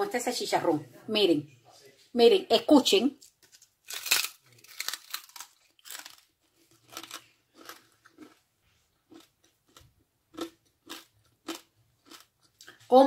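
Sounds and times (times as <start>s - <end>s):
crisp crunching chewing: 3.2s - 12.9s.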